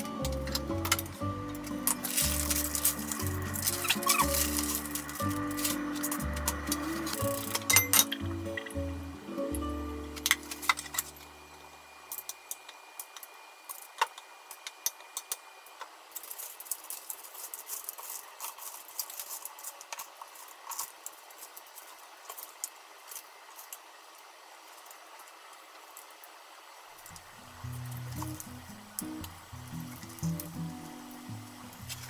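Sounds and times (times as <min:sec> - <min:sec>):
crushed crackers crackling: 0:00.0 - 0:07.7, 0:12.0 - 0:26.1.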